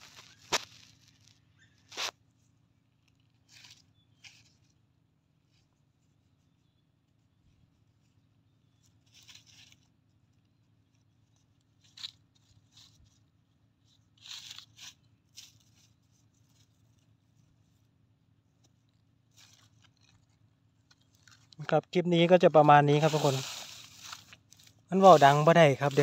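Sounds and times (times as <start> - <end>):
dry leaves rustling: 0.0 - 2.1, 3.3 - 4.8, 7.9 - 26.0
fingers scraping sandy soil: 1.9 - 2.2, 22.2 - 26.0.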